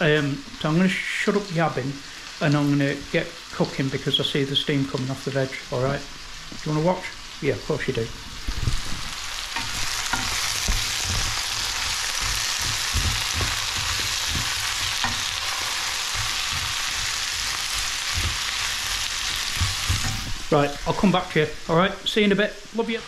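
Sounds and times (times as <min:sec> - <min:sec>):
vegetables sizzling in oil: 0:00.0 - 0:23.0
wooden spoon knocking pan: 0:09.6 - 0:21.3.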